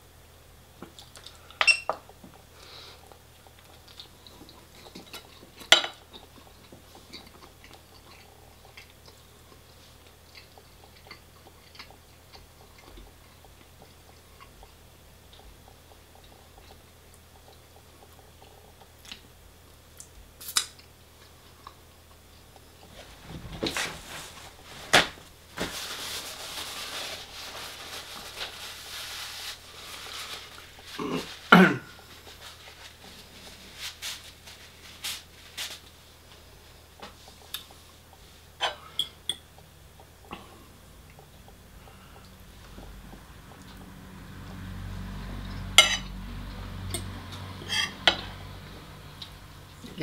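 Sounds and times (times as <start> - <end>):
chewing: 3.0 - 19.3
rustling: 22.8 - 36.0.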